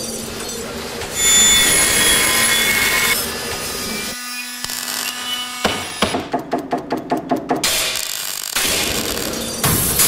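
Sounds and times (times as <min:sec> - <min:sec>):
saw blade cutting metal: 0:01.1 - 0:06.2.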